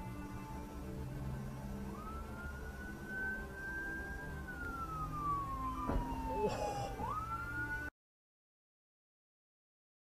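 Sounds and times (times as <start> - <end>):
low traffic rumble: 0.0 - 7.9
siren wailing: 1.6 - 7.9
short thump: 5.8 - 6.2.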